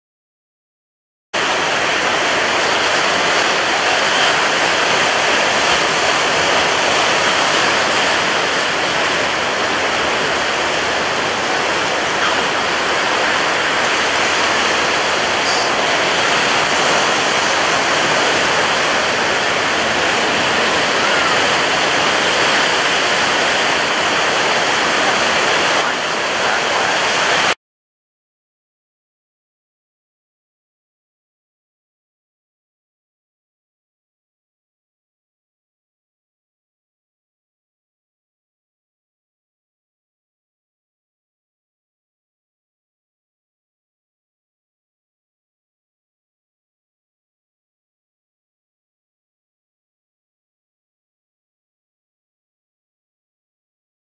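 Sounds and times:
waves breaking: 0:01.4 - 0:27.6
wind-driven spray: 0:01.4 - 0:27.6.

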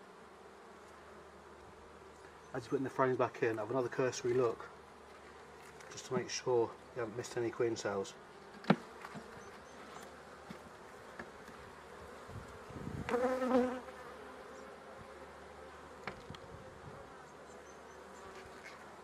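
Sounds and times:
honeybees humming: 0:00.0 - 0:19.0
bee buzzing close: 0:07.8 - 0:19.0.

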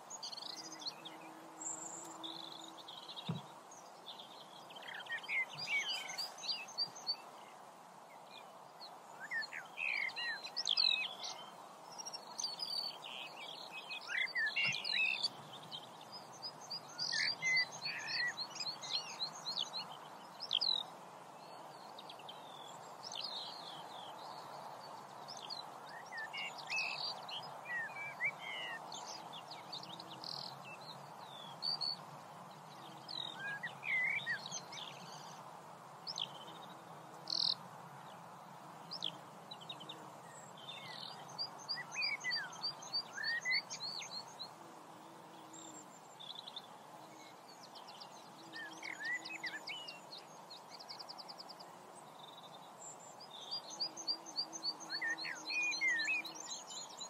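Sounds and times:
birds chirping: 0:00.0 - 0:07.6
steady background hiss: 0:00.0 - 0:57.0.

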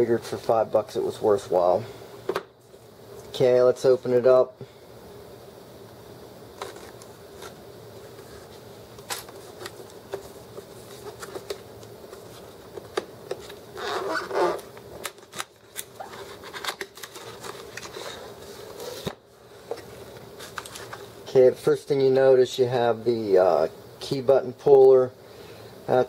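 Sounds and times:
cardboard and paper rustling: 0:06.6 - 0:07.6, 0:08.2 - 0:19.2.

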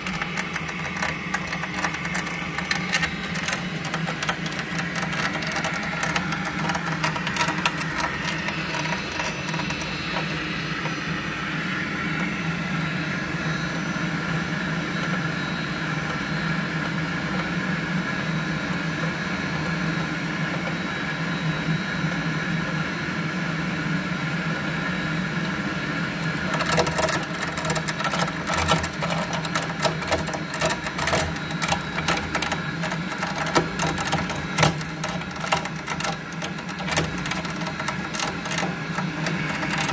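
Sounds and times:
fast rattling clicking: 0:00.0 - 0:11.0, 0:26.4 - 0:39.9
gas boiler humming: 0:00.0 - 0:39.9.

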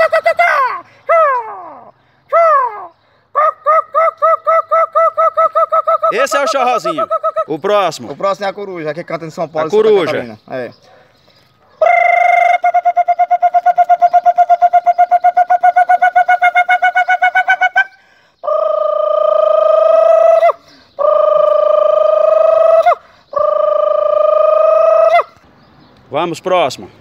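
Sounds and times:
man imitating owl hoots: 0:00.0 - 0:07.7, 0:11.8 - 0:25.3.

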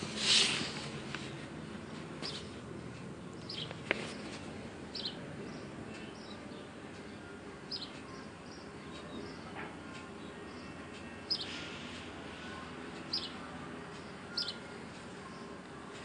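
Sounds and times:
low background noise: 0:00.0 - 0:16.0
high bird chirps: 0:03.4 - 0:04.3, 0:04.9 - 0:09.5, 0:10.5 - 0:11.7, 0:13.0 - 0:13.4, 0:14.0 - 0:14.7.

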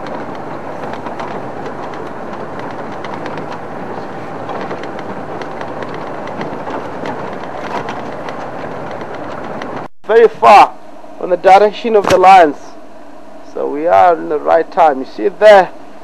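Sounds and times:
bodywork rattling: 0:00.0 - 0:09.9
vehicle engine and road noise: 0:00.0 - 0:09.9.

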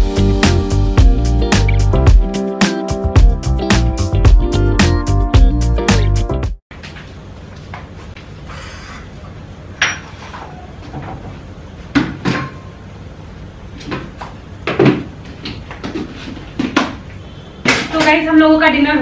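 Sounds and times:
dishes and pots clattering: 0:09.8 - 0:11.2, 0:12.1 - 0:12.8.

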